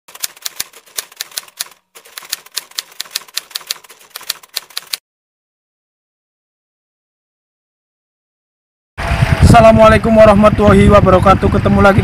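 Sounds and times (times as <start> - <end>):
typewriter keystrokes: 0.1 - 5.0.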